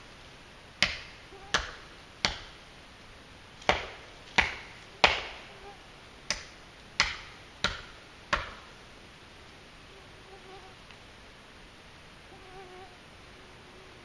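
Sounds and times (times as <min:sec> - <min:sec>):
knife chopping into wood: 0:03.6 - 0:05.4, 0:06.3 - 0:08.6.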